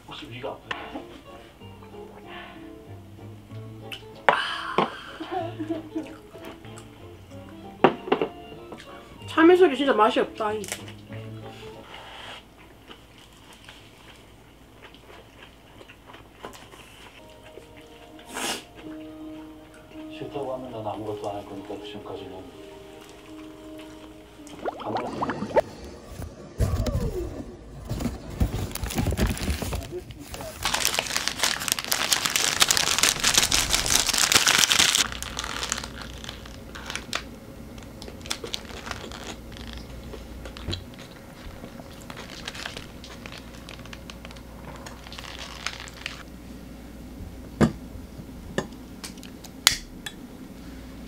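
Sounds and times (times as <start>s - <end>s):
paper wrappers crinkling: 27.9s - 46.2s.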